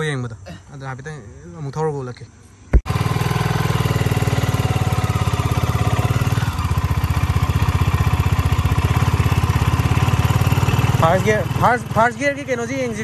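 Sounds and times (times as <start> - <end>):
single-cylinder motorcycle engine running: 2.8 - 13.0.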